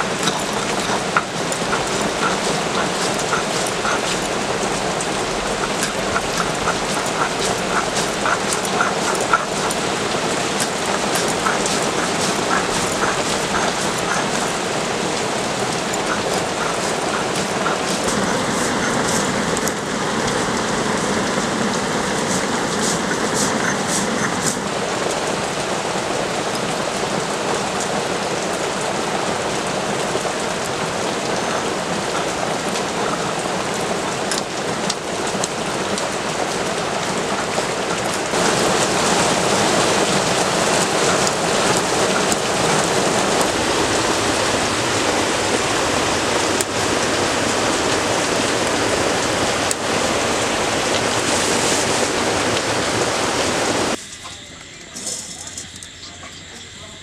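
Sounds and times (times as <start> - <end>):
hand grater rasping: 0.0 - 14.8, 15.5 - 19.8.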